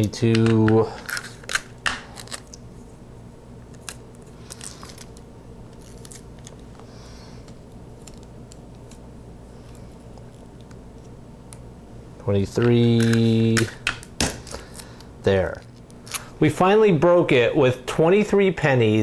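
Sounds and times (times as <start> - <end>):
tape clicking and crinkling: 0.0 - 2.7, 3.6 - 11.7, 12.4 - 16.4
tape rustling: 3.6 - 11.6.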